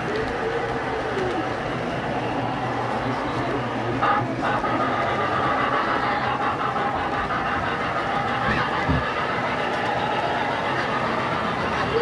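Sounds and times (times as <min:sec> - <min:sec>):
model train rolling: 0:00.0 - 0:12.0.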